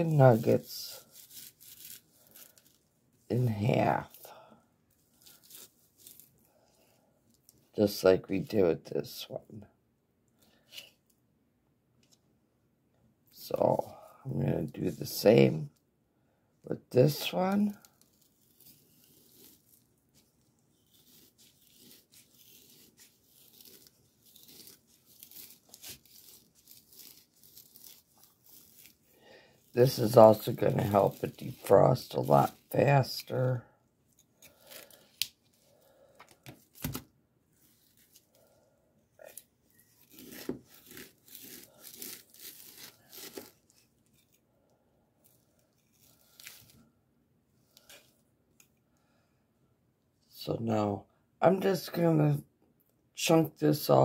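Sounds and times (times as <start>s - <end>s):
knife sawing through frozen meat: 0.0s - 2.8s, 17.8s - 19.8s, 20.7s - 33.2s, 39.8s - 43.9s.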